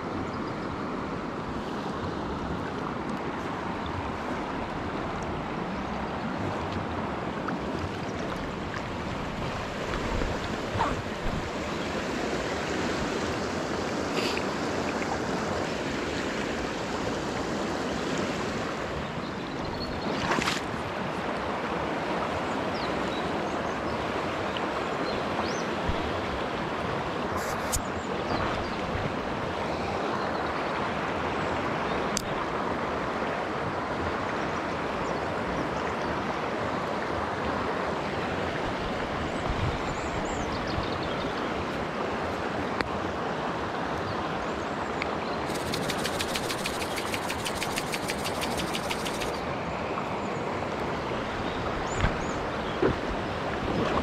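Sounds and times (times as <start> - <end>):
river water babbling over stones: 0.0 - 28.0, 40.0 - 53.7.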